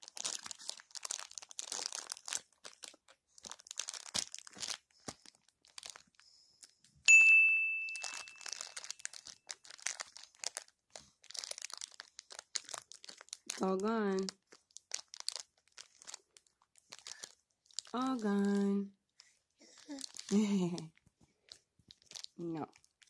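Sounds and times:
plastic pack crinkling: 0:00.0 - 0:06.7, 0:07.9 - 0:18.7, 0:19.6 - 0:23.0
bright ding: 0:07.1 - 0:08.6.

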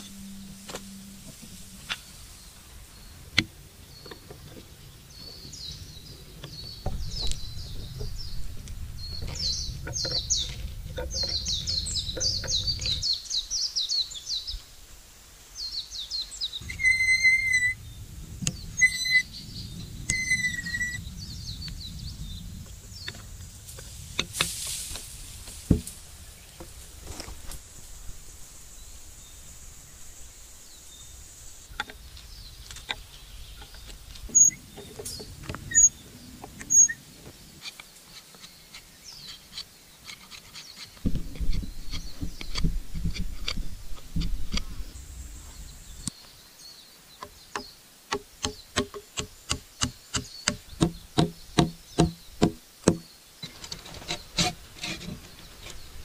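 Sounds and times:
knocks on wood: 0:47.6 - 0:53.0.

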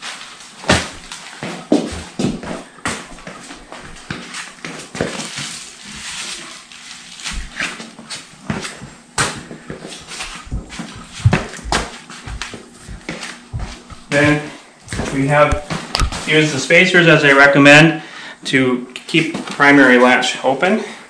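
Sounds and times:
footsteps on cardboard: 0:00.6 - 0:16.3.

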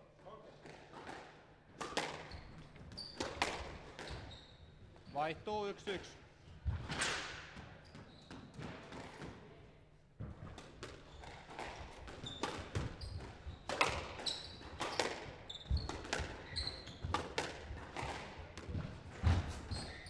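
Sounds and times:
squash ball cracking off rackets: 0:00.7 - 0:02.3, 0:03.2 - 0:04.2, 0:10.5 - 0:19.6
shoes squeaking on court floor: 0:02.0 - 0:05.3, 0:07.6 - 0:08.8, 0:10.2 - 0:20.0.

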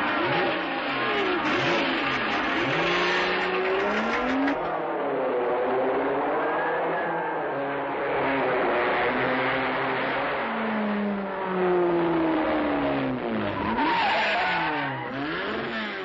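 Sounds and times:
racing car engines passing by: 0:00.0 - 0:16.0
tyres screeching: 0:13.6 - 0:16.0.

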